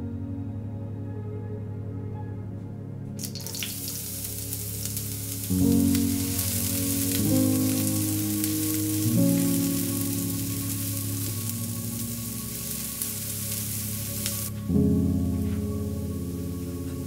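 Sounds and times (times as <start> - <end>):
soft background music: 0.0 - 17.0
onion sizzling in a frying pan: 3.2 - 14.6.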